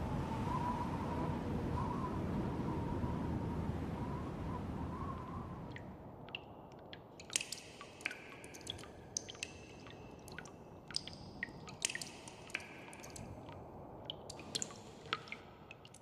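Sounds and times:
meltwater dripping: 5.7 - 16.0.

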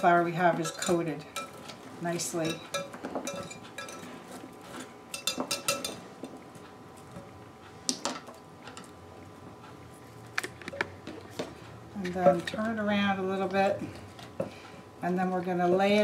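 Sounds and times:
whisk clinking against glass bowl: 2.4 - 4.0.

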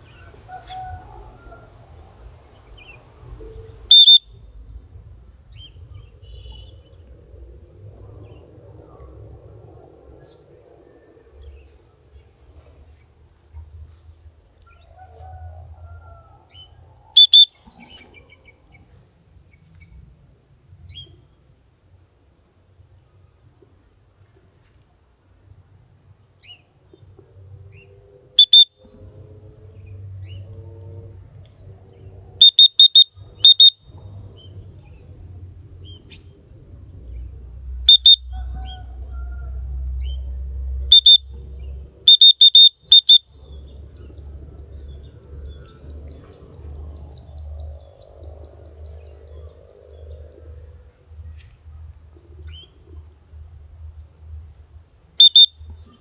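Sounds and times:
insects shrilling: 0.0 - 7.2, 12.8 - 25.3, 26.0 - 56.0
short high whistled notes: 3.9 - 4.2.

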